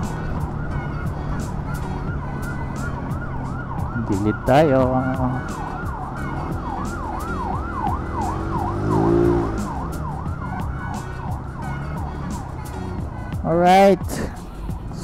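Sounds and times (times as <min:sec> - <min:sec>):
siren falling sweeps: 0:00.0 - 0:11.8
road and engine noise: 0:00.0 - 0:15.0.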